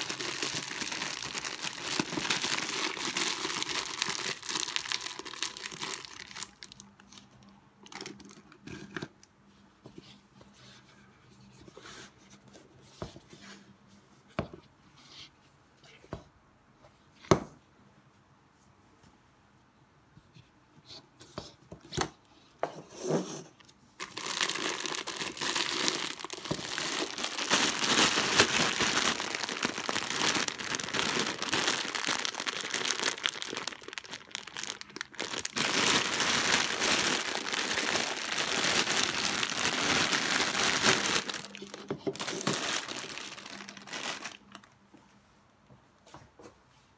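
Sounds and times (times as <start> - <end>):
plastic bag crinkling: 0.0 - 8.8, 24.0 - 44.7.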